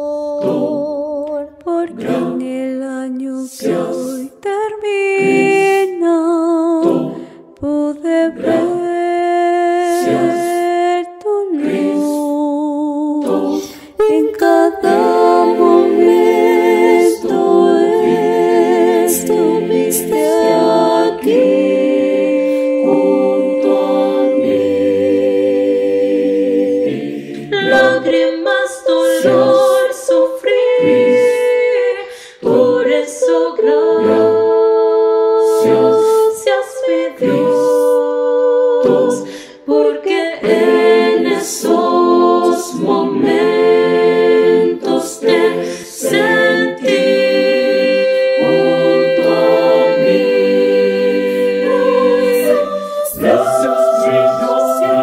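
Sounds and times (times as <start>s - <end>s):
mixed choir singing a cappella: 0.0s - 55.0s.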